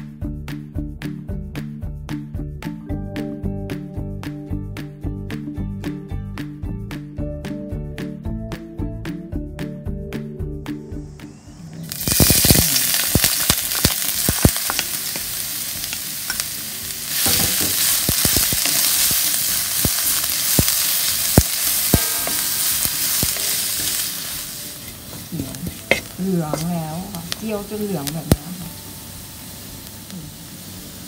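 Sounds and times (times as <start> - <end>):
oil sizzling in a wok: 10.8 - 31.0
spatula scraping a wok: 17.1 - 26.9.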